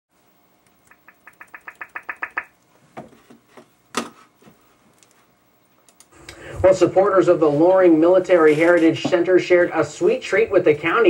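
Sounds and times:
rapid sharp ticks: 0.6 - 2.6.

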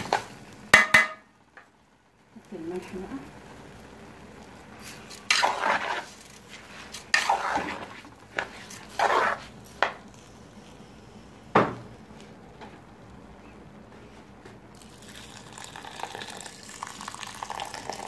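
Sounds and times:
metal spoon scraping a pan: 4.8 - 9.5.

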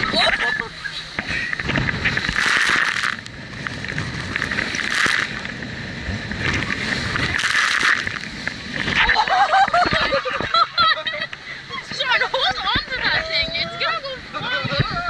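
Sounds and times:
hull slapping on waves: 0.0 - 13.6
wind buffeting microphone: 11.7 - 15.0.

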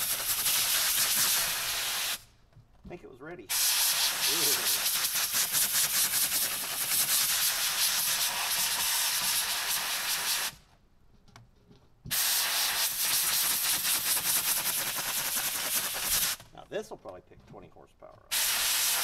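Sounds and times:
compressed air blow gun hissing: 0.0 - 2.3, 3.5 - 10.6, 12.1 - 16.4, 18.3 - 19.0.

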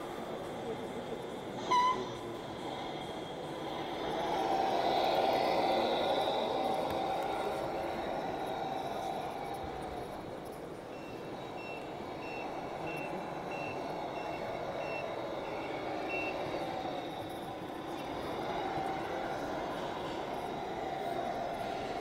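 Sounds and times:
steady background noise: 0.0 - 22.0
truck reversing beeper: 1.6 - 2.2, 10.9 - 17.5.

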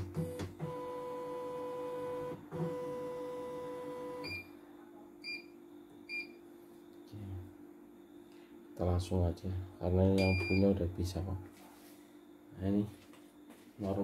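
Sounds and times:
touch screen beeps: 10.2 - 10.7.

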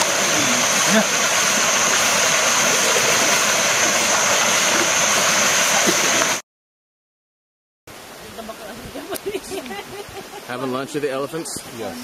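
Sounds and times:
river water rushing over rocks: 0.0 - 6.4.

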